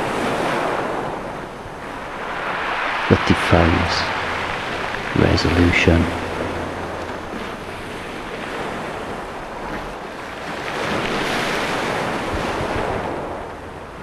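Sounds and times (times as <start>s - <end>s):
strong wind: 0.0s - 14.0s
surf: 0.0s - 14.0s.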